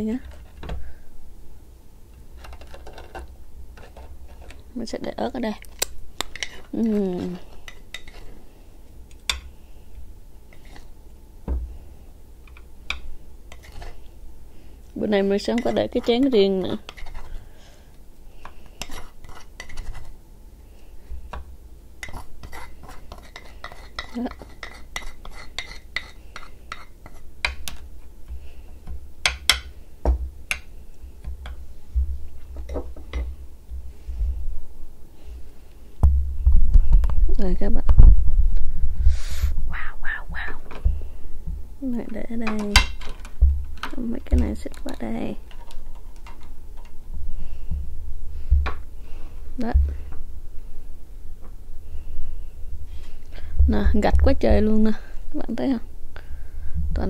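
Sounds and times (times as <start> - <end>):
soft low knock: 36.0 - 37.0
low rumble: 36.0 - 41.8.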